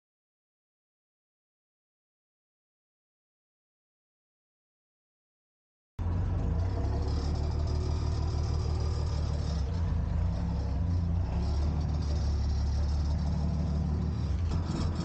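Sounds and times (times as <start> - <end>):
engine running steadily: 6.0 - 15.0.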